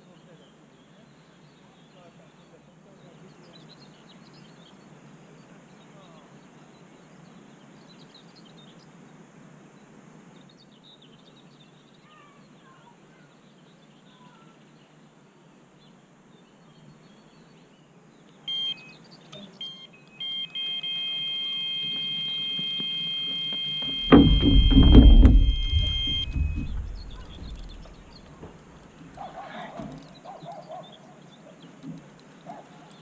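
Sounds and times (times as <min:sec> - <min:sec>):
faint outdoor ambience: 0:00.0 - 0:33.0
bird chirps: 0:16.4 - 0:33.0
bite alarm beeping: 0:18.5 - 0:19.0, 0:19.6 - 0:28.9.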